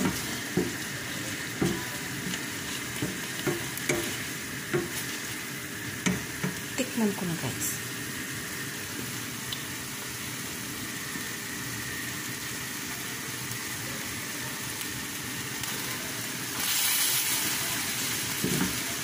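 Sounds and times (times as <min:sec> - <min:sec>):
spatula stirring in pan: 0:00.0 - 0:06.8
meat sizzling in a frying pan: 0:00.0 - 0:19.0.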